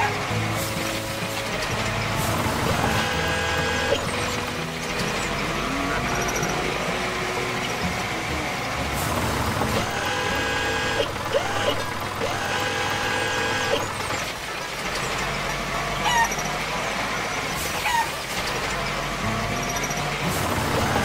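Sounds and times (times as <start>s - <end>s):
steady whine: 0.0s - 14.7s
cartoon tractor engine running: 0.0s - 21.0s.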